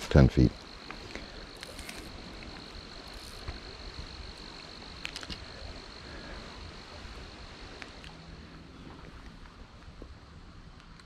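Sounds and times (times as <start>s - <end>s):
faint clicks: 4.6s - 5.5s.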